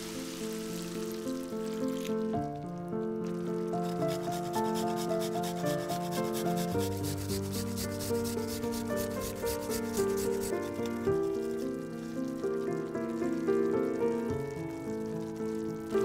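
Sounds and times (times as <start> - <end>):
soft background music: 0.0 - 16.0
garlic grated on metal grater: 3.8 - 10.7.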